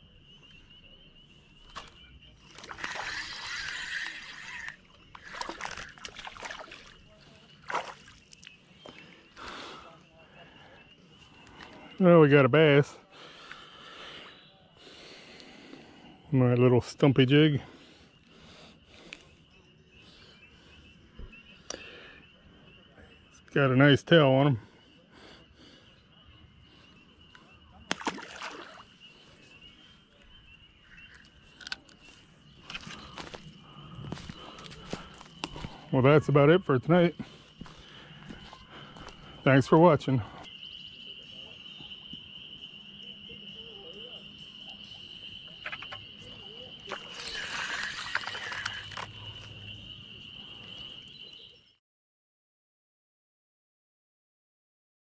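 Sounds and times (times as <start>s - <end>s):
fish splashing: 1.7s - 8.4s, 27.9s - 29.0s, 46.8s - 49.2s
short water splash: 7.6s - 8.1s, 27.9s - 28.8s.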